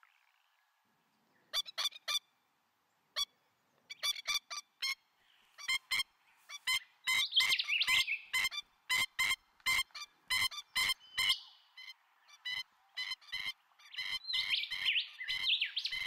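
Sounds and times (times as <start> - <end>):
cockatoo calls: 5.6 - 16.0.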